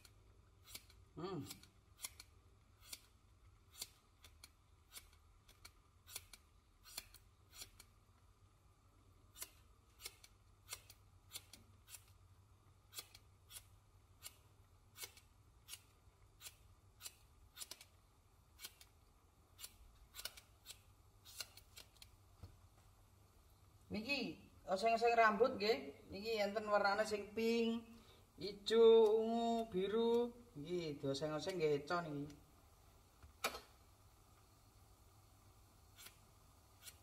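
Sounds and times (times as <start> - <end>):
scissors snipping hair: 0.0 - 7.9, 9.3 - 12.2, 12.9 - 17.9, 18.6 - 19.0, 19.6 - 22.1.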